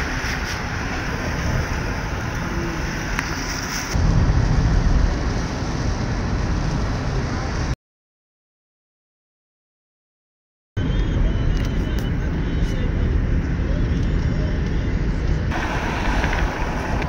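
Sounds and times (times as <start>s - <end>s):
wind buffeting microphone: 10.9s - 17.0s.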